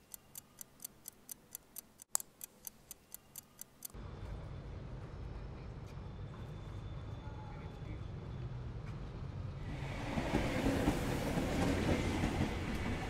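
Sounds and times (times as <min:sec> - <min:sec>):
watch ticking: 0:00.0 - 0:04.0.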